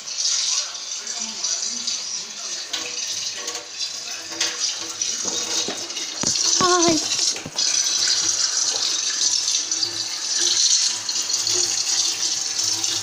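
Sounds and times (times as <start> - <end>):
tap water running into sink: 0.0 - 13.0
person's wavering voice: 6.6 - 7.1.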